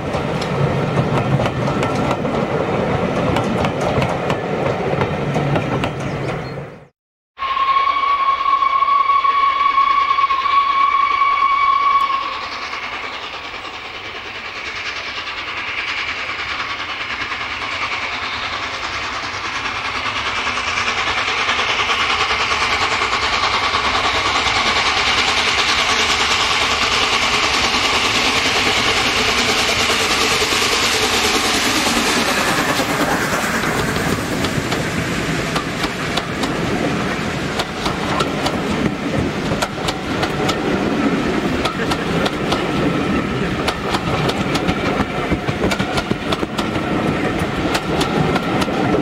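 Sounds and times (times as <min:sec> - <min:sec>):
steam locomotive and train approaching: 0:00.0 - 0:49.0
steam whistle blast: 0:07.4 - 0:12.7.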